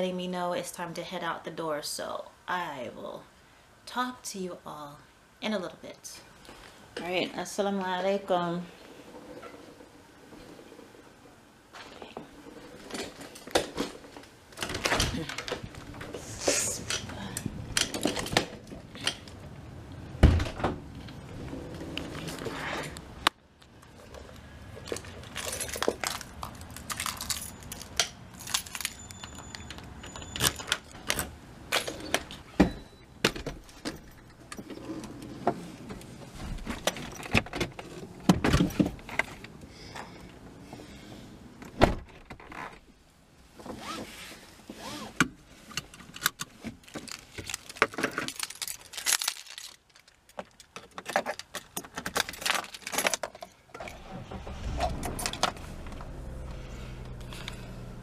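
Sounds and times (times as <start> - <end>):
keys jangling: 24.9 - 30.9
clicks rattles and knocks: 45.8 - 53.6.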